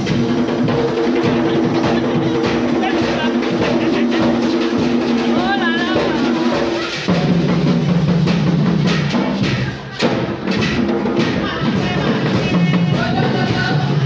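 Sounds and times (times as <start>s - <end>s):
live drums fast rhythm: 0.0s - 14.0s
voices singing: 0.3s - 7.1s, 11.0s - 14.0s.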